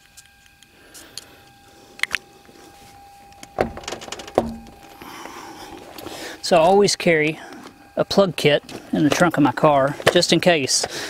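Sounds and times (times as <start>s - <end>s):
car trunk latch clicks: 3.5s - 4.9s
car trunk thunks: 3.6s - 4.9s.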